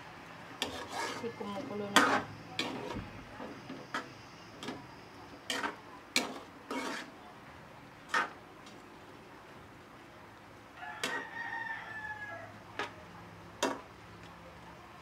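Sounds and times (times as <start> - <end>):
metal ladle scraping wok: 0.6 - 3.0, 5.4 - 7.2, 8.1 - 8.4.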